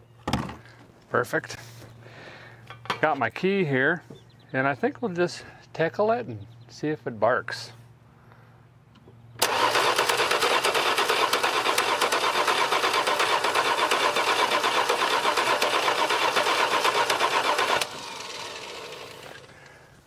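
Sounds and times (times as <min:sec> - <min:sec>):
car engine cranking by starter motor: 0:09.4 - 0:19.9.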